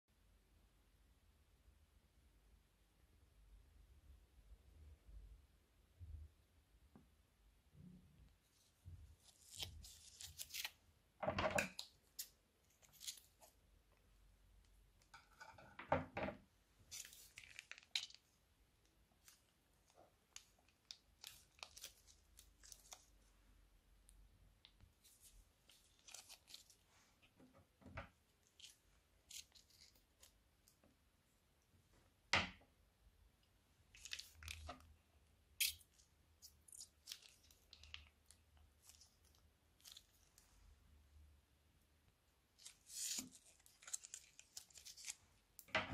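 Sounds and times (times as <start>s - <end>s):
plastic bag crinkling: 42.6s - 45.2s.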